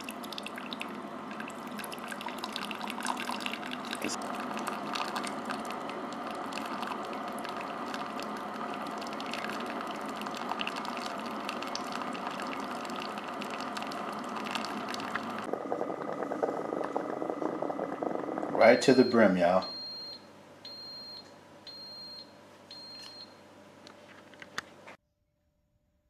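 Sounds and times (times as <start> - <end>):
hot water pouring into mug: 0.0 - 19.2
water gurgling: 0.0 - 19.4.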